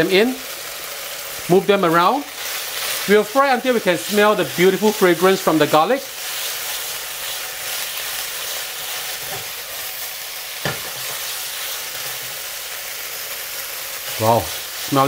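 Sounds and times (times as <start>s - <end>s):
meat and garlic sizzling in oil: 0.0s - 15.0s.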